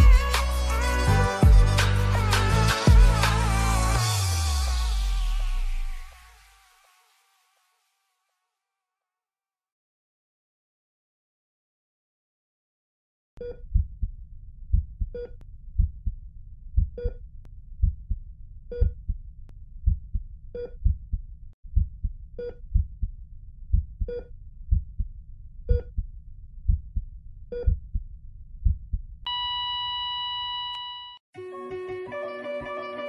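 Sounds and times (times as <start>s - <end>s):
heartbeat thumps: 0.0s - 0.3s, 1.4s - 1.8s, 2.9s - 3.2s, 13.7s - 14.1s, 14.7s - 16.2s, 16.8s - 17.2s, 17.8s - 19.2s, 19.8s - 23.1s, 23.7s - 25.1s, 26.7s - 29.0s
heart monitor beeps: 27.6s - 27.8s, 29.3s - 31.2s
flatline tone: 29.3s - 31.2s.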